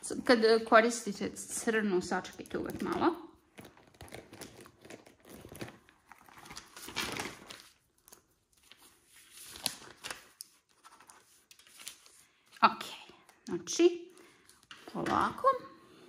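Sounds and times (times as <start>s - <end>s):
paper rustling and crinkling: 2.6s - 12.6s.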